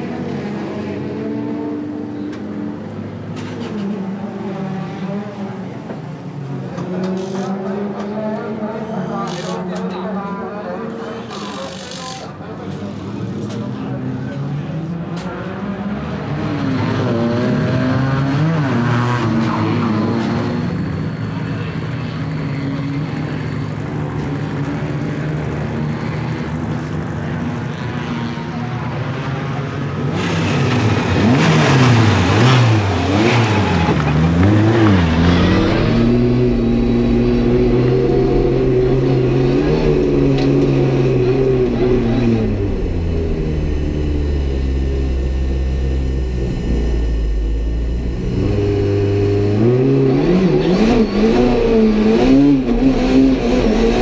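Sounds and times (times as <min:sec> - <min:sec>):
car engine idling and revving: 0:00.0 - 0:54.0.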